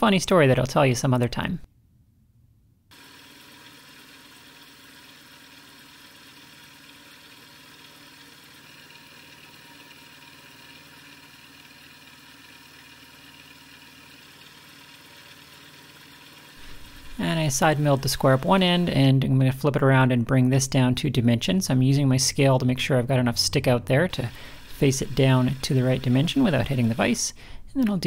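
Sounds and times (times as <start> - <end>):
milling machine cutting metal: 2.9 - 19.0, 24.1 - 27.3.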